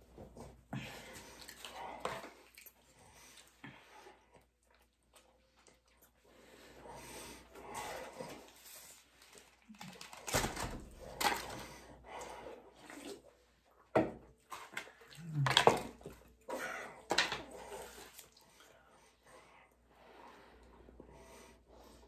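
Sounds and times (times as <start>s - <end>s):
paper wrappers rustling: 8.6s - 11.6s.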